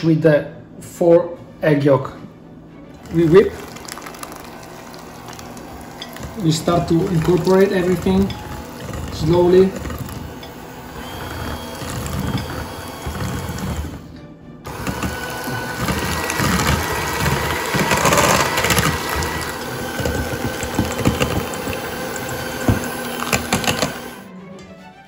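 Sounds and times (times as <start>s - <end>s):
electric hand mixer running: 3.0s - 24.3s.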